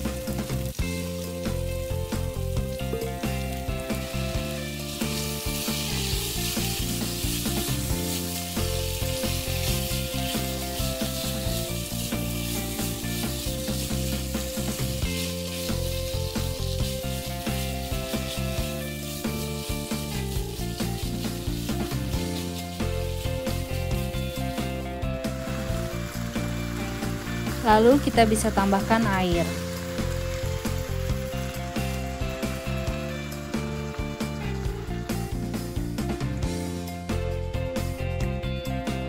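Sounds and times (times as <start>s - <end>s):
beef sizzling in a frying pan: 0.0s - 36.9s
soft background music: 0.0s - 39.0s
spatula scraping meat: 4.7s - 27.6s.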